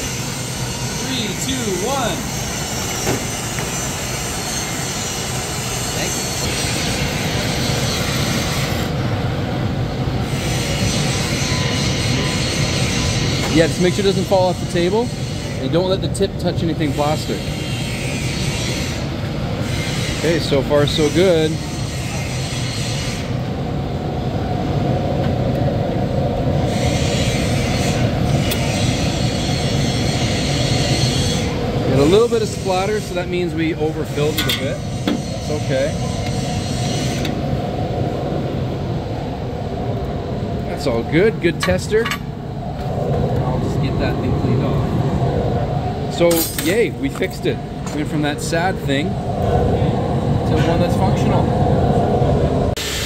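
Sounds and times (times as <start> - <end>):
spinning machine whirring and squealing: 0.0 - 8.9, 10.2 - 23.4, 26.6 - 37.4.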